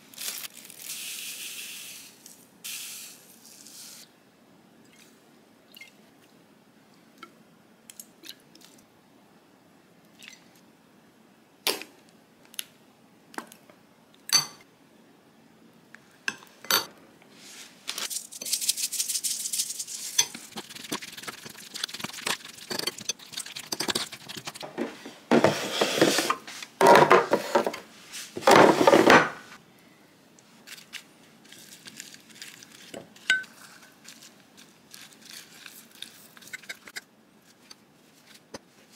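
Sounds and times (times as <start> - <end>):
spoon clinking on ceramic bowl: 14.3 - 14.6
stirring wet seasoning: 17.5 - 26.7, 30.7 - 38.4.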